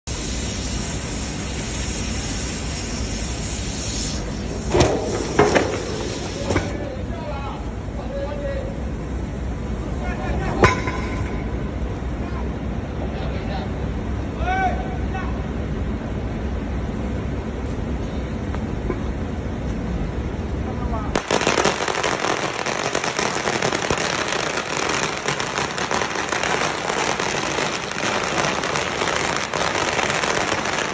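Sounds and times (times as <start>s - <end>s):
cutting torch hissing: 0.0s - 10.5s, 21.6s - 30.9s
firecrackers crackling: 0.0s - 11.7s, 21.0s - 30.9s
sharp metallic bangs: 10.6s - 11.6s.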